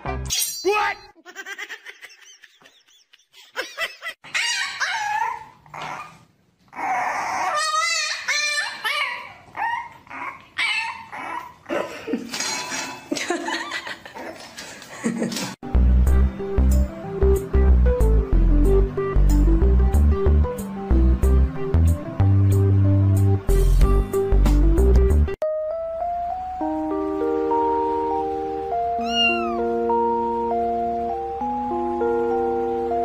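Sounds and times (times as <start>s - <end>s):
puppy crying: 4.2s - 11.9s, 29.0s - 29.7s.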